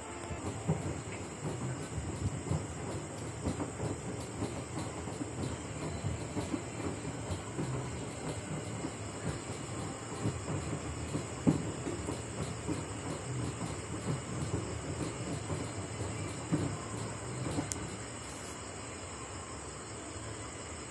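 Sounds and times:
washing machine knock: 0.4 - 18.0
washing machine drum churning: 0.4 - 18.1.

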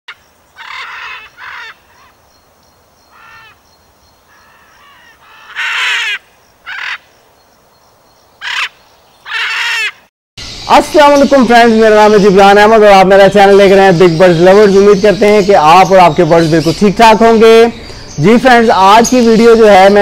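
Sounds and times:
macaw squawking: 0.6 - 2.2, 3.1 - 3.6, 4.3 - 7.1, 8.4 - 12.5.

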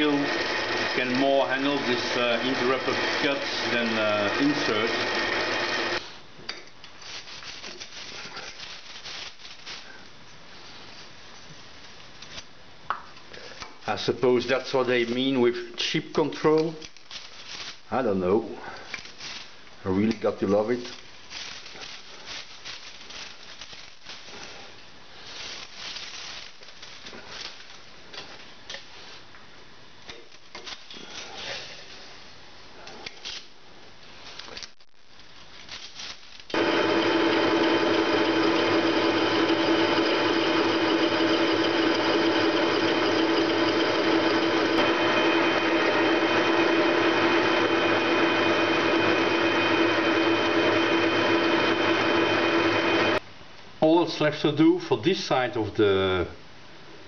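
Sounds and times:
metal lathe cutting hiss: 0.0 - 6.0, 36.5 - 53.2.

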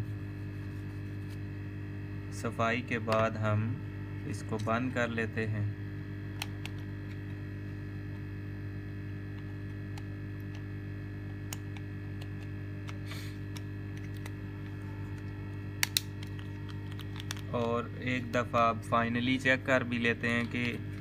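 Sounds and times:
electrical mains hum: 0.0 - 21.0
plastic phone housing clicks: 15.8 - 17.4.

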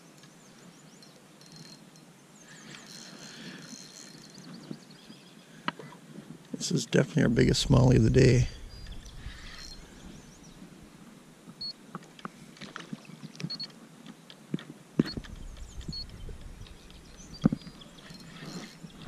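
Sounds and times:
fishing reel clicking: 2.6 - 4.5.

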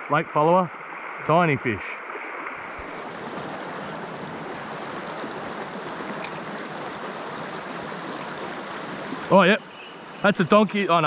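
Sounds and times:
creek water over stones: 2.4 - 11.0.

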